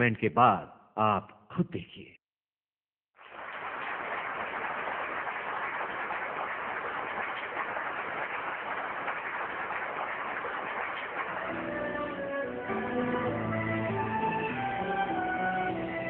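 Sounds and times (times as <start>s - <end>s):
audience applauding: 3.2s - 16.0s
music: 11.3s - 16.0s.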